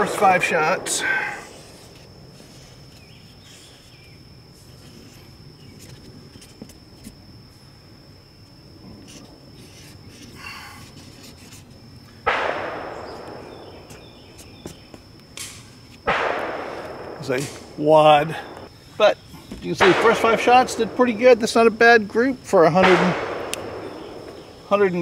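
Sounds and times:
thin high whine: 0.0s - 25.0s
gunshot with echo: 12.3s - 14.2s, 16.1s - 18.6s, 19.8s - 21.1s, 22.8s - 24.5s.

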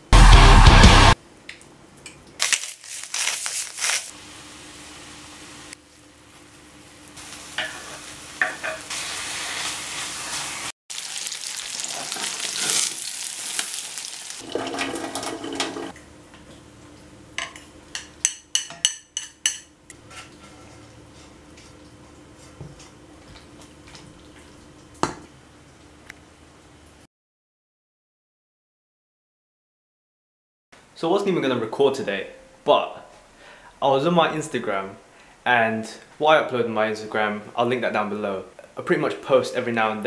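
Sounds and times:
chicken sizzling in a pan: 2.4s - 16.0s.

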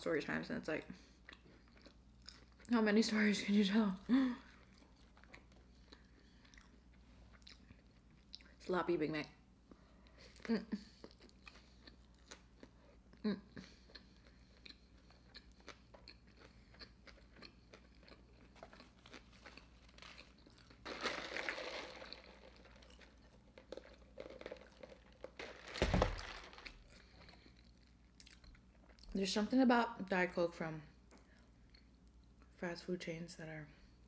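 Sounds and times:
close-up chewing: 1.0s - 2.7s, 4.4s - 8.6s, 9.7s - 29.2s.

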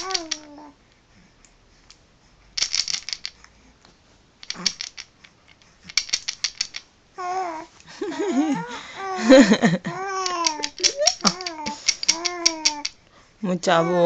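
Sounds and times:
baby rattle beads clacking: 0.0s - 0.6s, 2.6s - 3.4s, 4.4s - 6.9s, 10.1s - 13.0s
person speaking: 10.4s - 14.0s.

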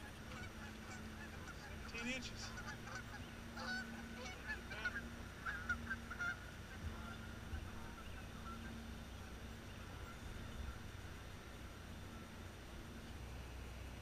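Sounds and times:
geese honking: 0.0s - 13.1s
low steady rumble: 0.0s - 14.0s.

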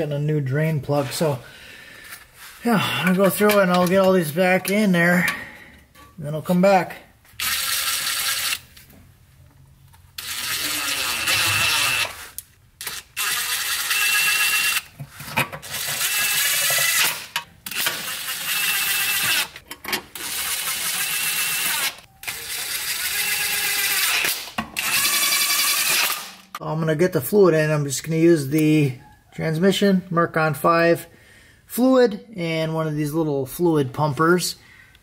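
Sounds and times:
cordless drill whirring: 10.2s - 14.9s, 15.8s - 19.6s.

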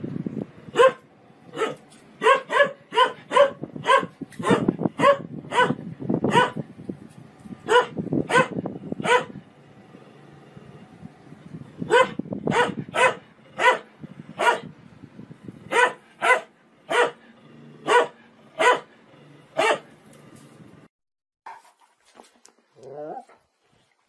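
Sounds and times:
dog barking: 0.7s - 6.6s, 7.6s - 9.4s, 11.9s - 14.7s, 15.7s - 17.2s, 17.8s - 19.0s, 19.6s - 19.9s.

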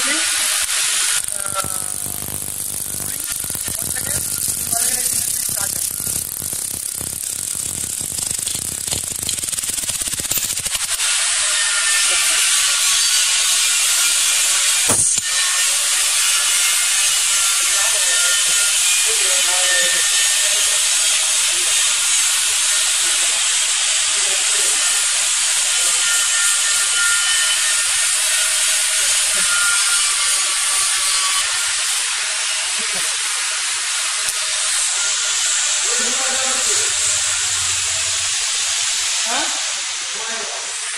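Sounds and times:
sharp click: 14.9s - 15.3s.

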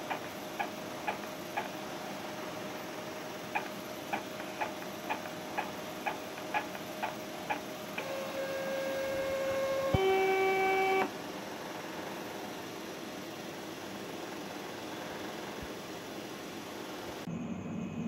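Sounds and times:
printer carriage ticking: 0.0s - 1.8s, 3.5s - 8.7s
printer motor whine: 0.0s - 17.3s.

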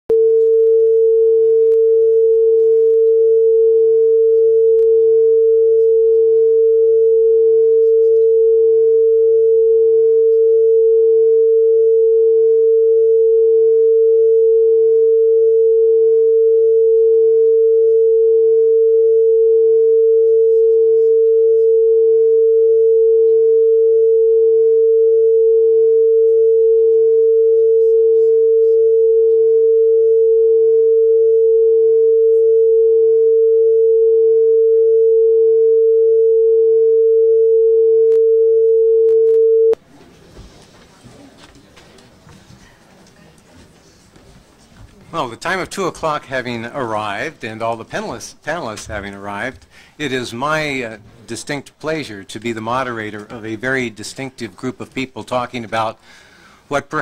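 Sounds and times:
single-pitch test tone: 0.1s - 39.8s.

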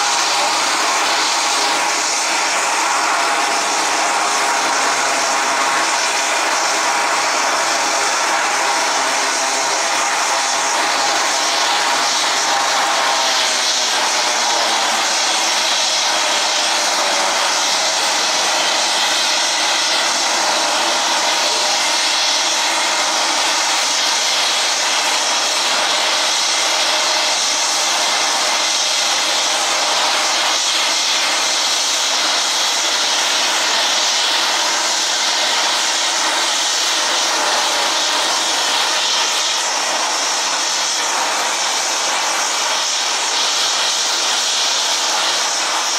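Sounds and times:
turboprop engines whining: 0.0s - 24.8s.

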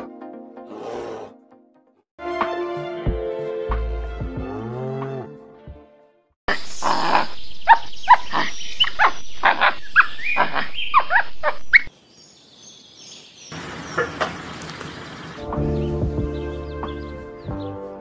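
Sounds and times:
monkey calling: 6.5s - 11.9s, 13.6s - 15.4s.

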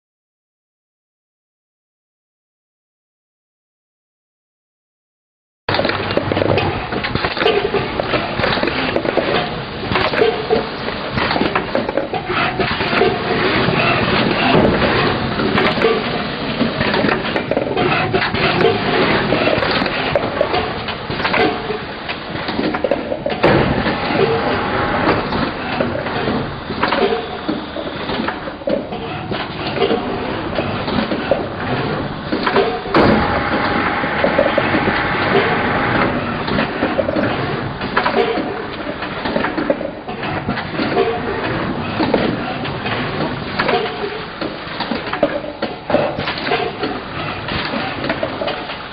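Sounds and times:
machine conveyor clattering: 5.7s - 48.9s.

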